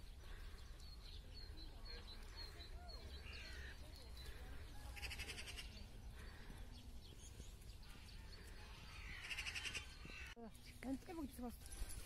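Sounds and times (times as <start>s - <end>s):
pulsing animal calls: 4.4s - 5.9s, 8.7s - 10.4s.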